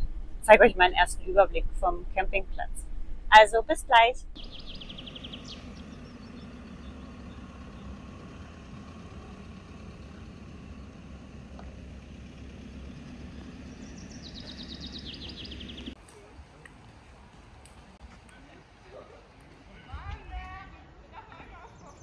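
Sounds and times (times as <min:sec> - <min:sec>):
van engine humming: 0:04.3 - 0:18.0
bird trilling: 0:04.4 - 0:08.4, 0:12.4 - 0:16.0.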